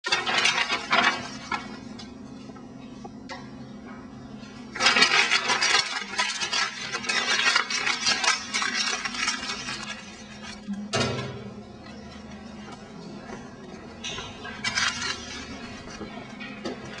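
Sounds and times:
steady low hum: 0:00.1 - 0:17.0
paper being crumpled: 0:04.7 - 0:10.7.

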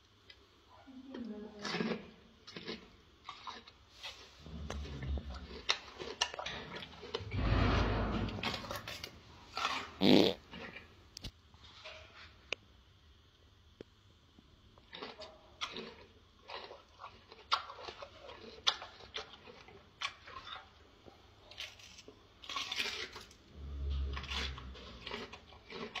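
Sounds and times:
gorilla chewing: 0:01.6 - 0:07.4, 0:14.8 - 0:26.0
low rumble: 0:07.1 - 0:09.1.

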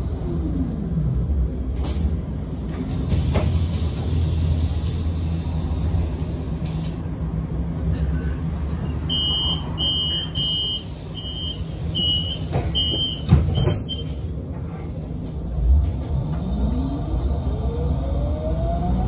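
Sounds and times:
bus low hum: 0:00.0 - 0:19.0
bus door warning beeps: 0:09.0 - 0:14.3.

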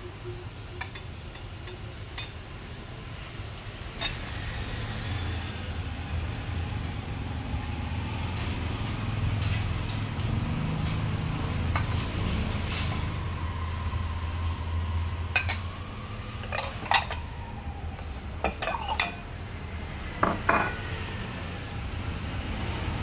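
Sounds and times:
bowls and spoon clinking: 0:15.4 - 0:15.6, 0:16.4 - 0:17.2, 0:18.4 - 0:19.2, 0:20.2 - 0:20.8.

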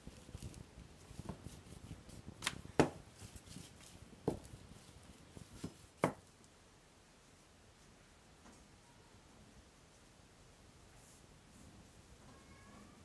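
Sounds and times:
faint rustle of rolling: 0:00.0 - 0:13.0
rolling pin knocking on worktop: 0:05.6 - 0:06.2.

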